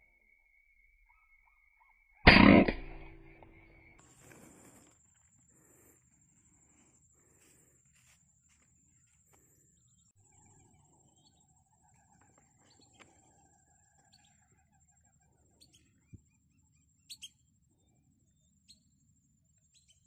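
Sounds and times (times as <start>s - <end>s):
bird chirps and calls: 10.2s - 17.4s.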